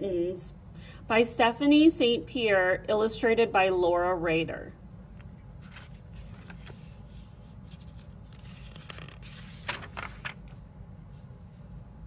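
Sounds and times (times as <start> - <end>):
low steady hum: 0.0 - 12.0
book pages rustling: 5.1 - 11.8.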